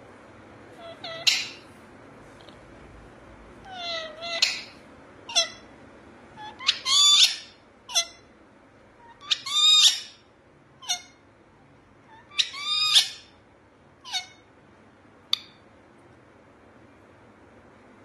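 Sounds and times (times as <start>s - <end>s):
parakeets squawking: 0.8s - 1.7s, 3.7s - 5.7s, 6.4s - 8.3s, 9.1s - 10.2s, 10.8s - 11.2s, 12.1s - 13.3s, 14.0s - 14.4s.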